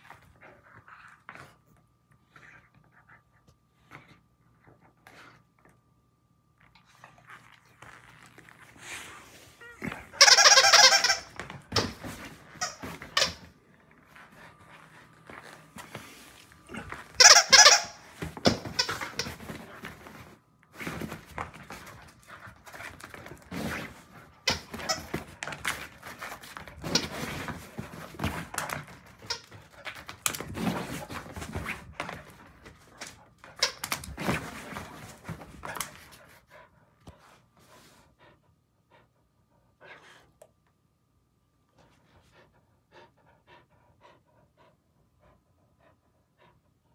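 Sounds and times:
squeaky dog toy squeaking: 0:10.1 - 0:11.9, 0:17.2 - 0:19.3.

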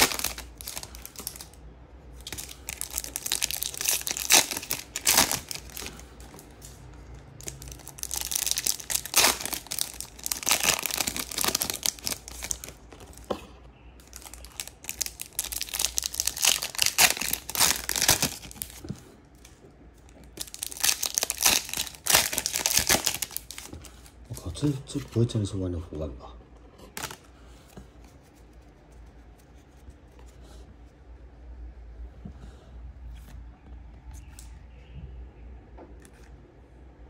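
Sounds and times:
foil wrappers tearing and crinkling: 0:00.0 - 0:01.6, 0:02.2 - 0:06.8, 0:07.4 - 0:13.2, 0:14.0 - 0:18.8, 0:20.3 - 0:24.1, 0:27.0 - 0:27.2.

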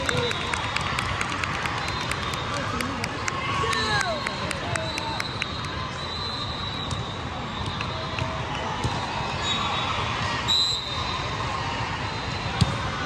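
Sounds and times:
referee's whistle: 0:04.1 - 0:11.1.

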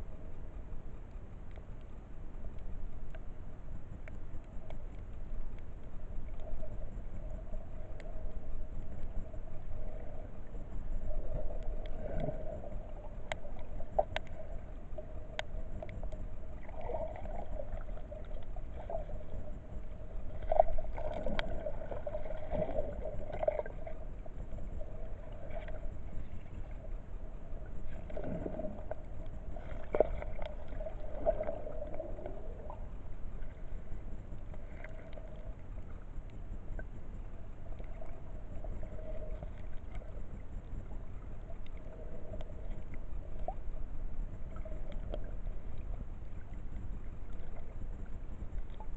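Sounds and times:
underwater hum and rumble: 0:00.0 - 0:48.9
swishes of movement in water: 0:06.1 - 0:36.0.

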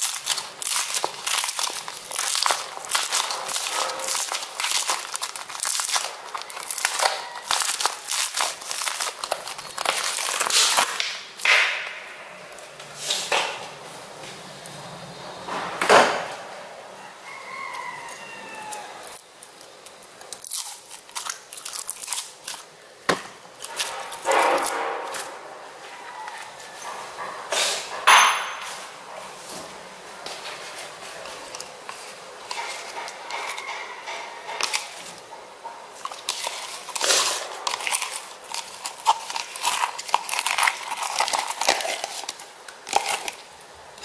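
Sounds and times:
slime squelches: 0:00.0 - 0:11.4
foam slime crackling and popping: 0:00.0 - 0:11.5, 0:18.6 - 0:25.3, 0:30.9 - 0:44.0.

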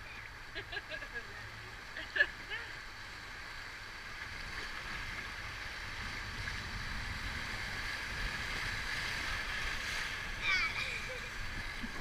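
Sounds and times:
river rapids rushing: 0:08.1 - 0:12.0.

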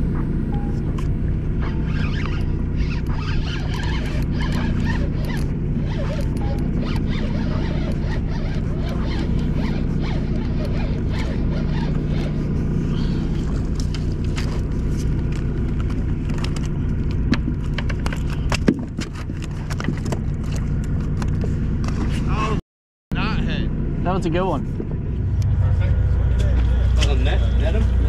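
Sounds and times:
boat engine humming: 0:00.0 - 0:22.6, 0:23.2 - 0:28.0
fishing reel clicking: 0:01.9 - 0:12.3.

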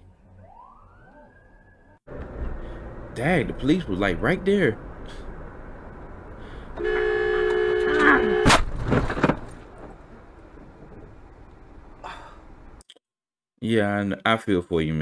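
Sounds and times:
car horn: 0:06.4 - 0:08.7
car crash bang: 0:06.8 - 0:11.2.

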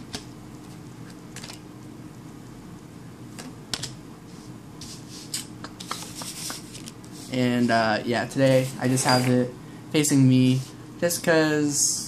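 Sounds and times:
low room hum: 0:00.0 - 0:12.0
cards clicking and flicking: 0:05.7 - 0:07.0.

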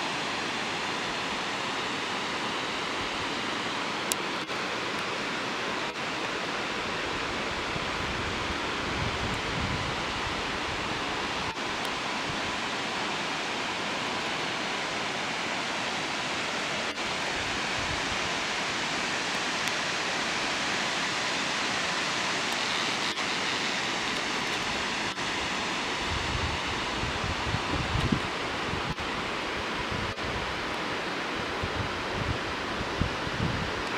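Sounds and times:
waterfall rushing: 0:00.0 - 0:33.9
wind buffeting microphone: 0:07.5 - 0:11.1, 0:26.0 - 0:29.1, 0:31.5 - 0:33.9.

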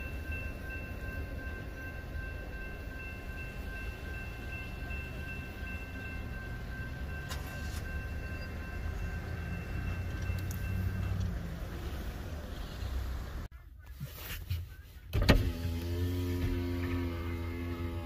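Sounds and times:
crossing warning bell ringing: 0:00.0 - 0:11.9.

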